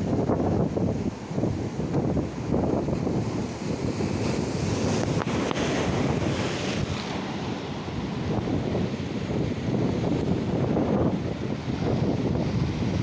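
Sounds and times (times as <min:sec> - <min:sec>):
wind buffeting microphone: 0:00.0 - 0:13.0
surf breaking on rocks: 0:02.7 - 0:11.1.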